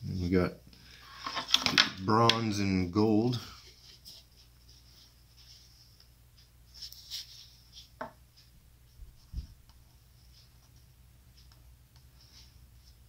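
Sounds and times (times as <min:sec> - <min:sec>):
soft low thump: 0:09.0 - 0:09.6.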